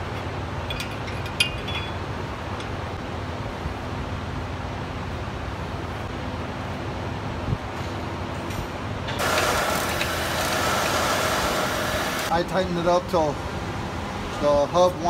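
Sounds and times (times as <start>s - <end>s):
metallic clinks: 0.6s - 2.8s.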